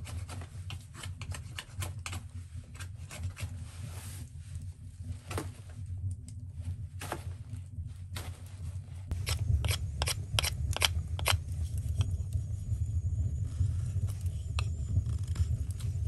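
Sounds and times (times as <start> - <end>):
wood fire crackling: 0.0 - 16.0
knife whittling wood: 9.1 - 11.4.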